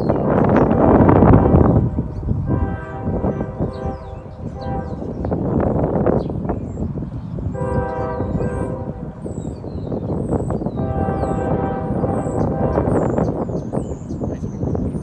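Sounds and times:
train rumbling: 0.0s - 15.0s
locomotive air horn blasts: 0.7s - 5.6s, 7.5s - 9.3s, 10.6s - 13.3s.

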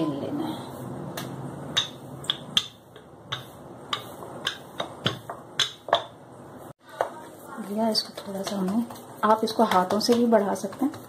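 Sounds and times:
rolling pin knocking on marble board: 1.2s - 6.2s, 8.0s - 11.0s.

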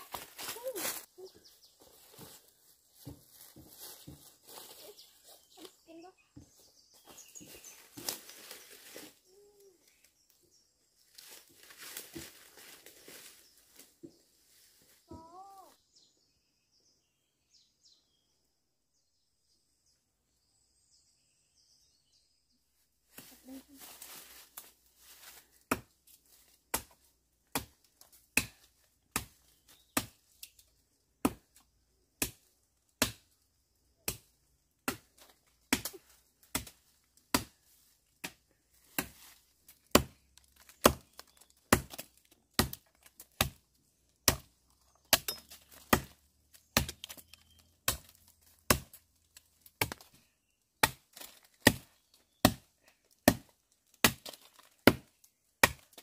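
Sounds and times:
blade chopping wood: 39.9s - 43.6s, 45.1s - 49.0s, 49.7s - 50.2s, 50.8s - 56.0s.

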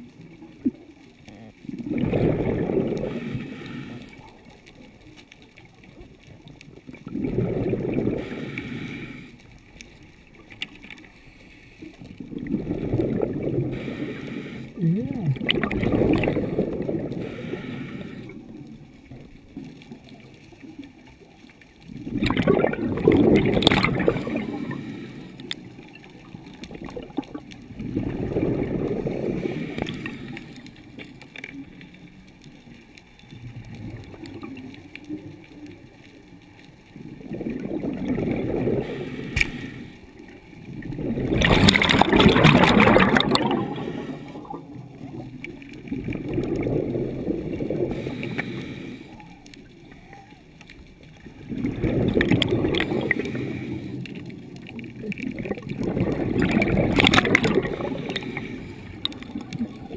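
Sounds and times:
bubbling and rushing: 0.0s - 50.0s, 50.7s - 59.9s
diver breathing through regulator: 2.0s - 4.3s, 7.2s - 9.5s, 12.5s - 14.8s, 15.4s - 18.5s, 23.6s - 25.8s, 27.9s - 30.9s, 38.1s - 40.2s, 41.2s - 44.7s, 47.5s - 49.5s, 52.2s - 54.3s, 56.2s - 59.3s.

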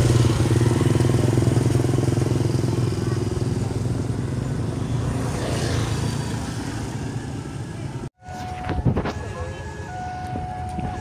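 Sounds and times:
motorcycle engines running: 0.0s - 8.4s.

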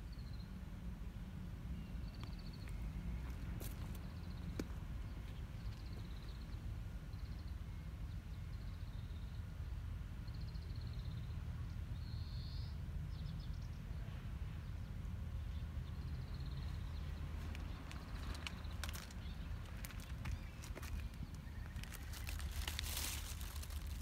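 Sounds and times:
low outdoor rumble: 0.0s - 24.0s
small birds chirping: 1.8s - 9.5s, 14.6s - 24.0s.

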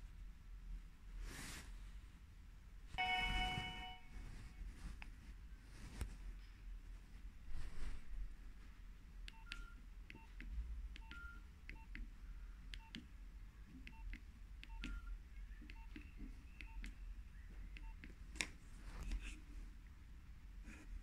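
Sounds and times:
electronic key beeps: 9.3s - 10.4s, 11.0s - 12.0s, 13.9s - 16.9s
phone keypad clicks: 13.8s - 17.0s.

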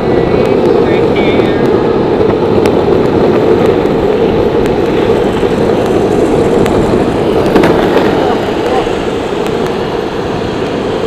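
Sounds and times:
skateboard wheels rolling on asphalt: 0.0s - 11.0s.

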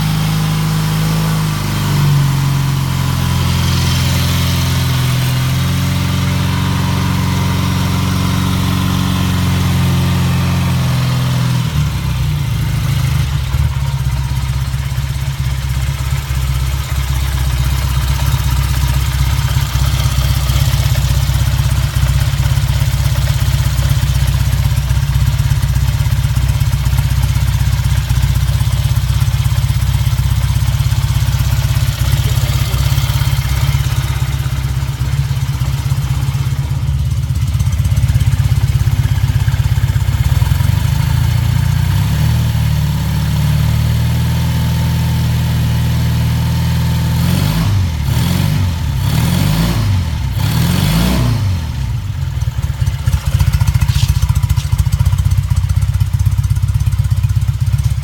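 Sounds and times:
motorcycle engine idling: 0.0s - 58.0s.

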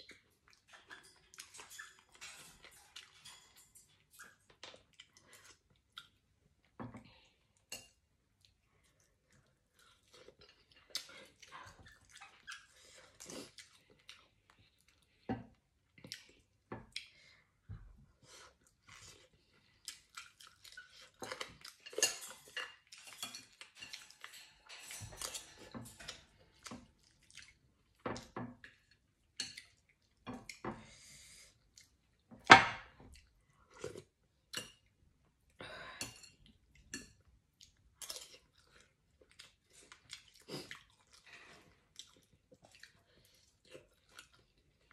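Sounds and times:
chewing and slurping: 0.1s - 6.3s, 8.4s - 15.3s, 18.4s - 24.6s, 25.2s - 28.0s, 37.6s - 44.9s.

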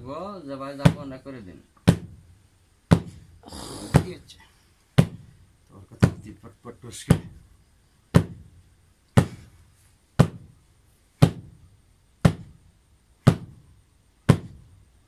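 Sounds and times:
heavy thudding blows: 9.2s - 9.6s, 10.2s - 10.6s, 11.2s - 11.6s.

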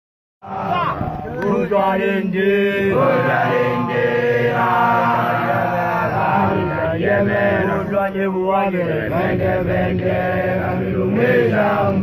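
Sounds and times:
men chanting together: 0.4s - 12.0s.

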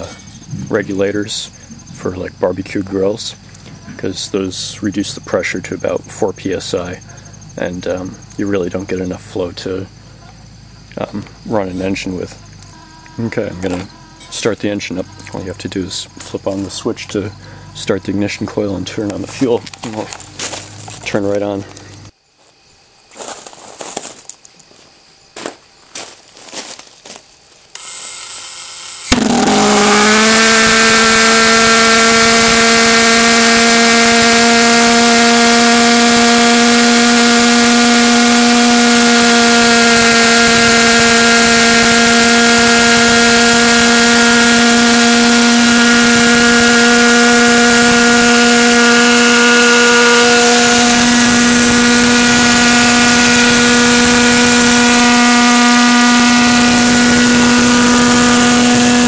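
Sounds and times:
pulsejet deep buzz: 0.0s - 22.1s, 27.8s - 59.0s.

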